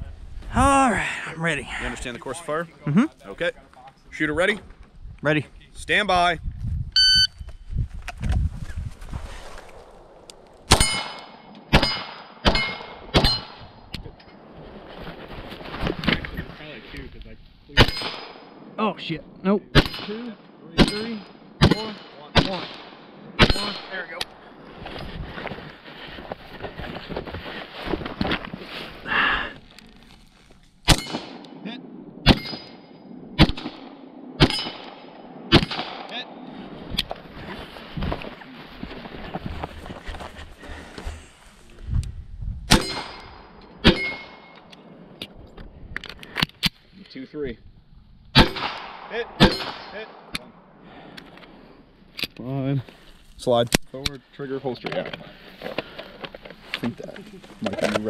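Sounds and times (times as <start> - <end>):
pistol shots: 10.7 - 13.5, 33.4 - 36.4, 48.4 - 50.4
metallic ring: 42.8 - 44.7.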